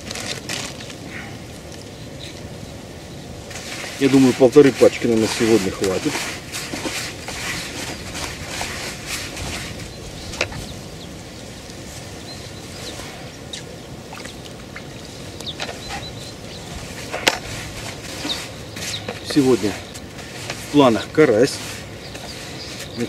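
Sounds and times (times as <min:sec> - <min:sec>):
outdoor background noise: 0:00.0 - 0:23.0
hands stirring dry groundbait in bucket: 0:03.5 - 0:10.5, 0:16.8 - 0:23.0
faint bird chirps: 0:09.8 - 0:17.2, 0:18.1 - 0:20.0.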